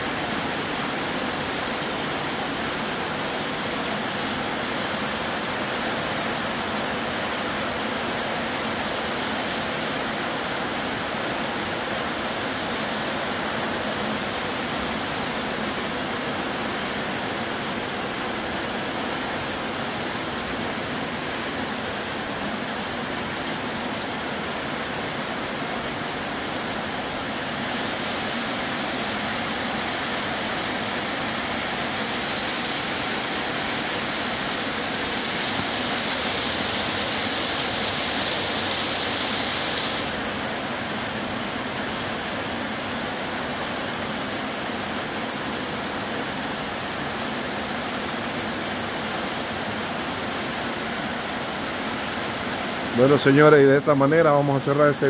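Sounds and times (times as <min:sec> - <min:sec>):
heavy rain downpour: 0:00.0 - 0:55.0
higher hiss: 0:26.7 - 0:40.3.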